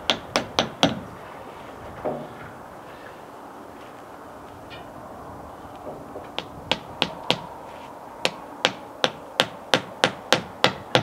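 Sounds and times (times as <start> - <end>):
hammer striking nails: 0.0 - 1.1, 6.2 - 7.5, 8.2 - 11.0.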